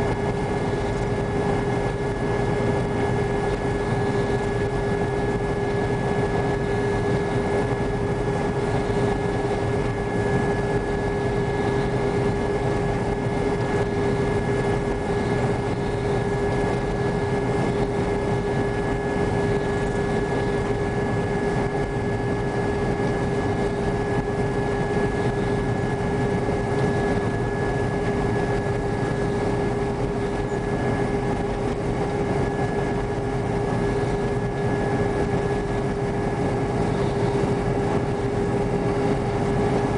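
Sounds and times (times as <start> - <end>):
combine harvester machinery drone: 0.0 - 39.9
steady whine: 0.0 - 39.9.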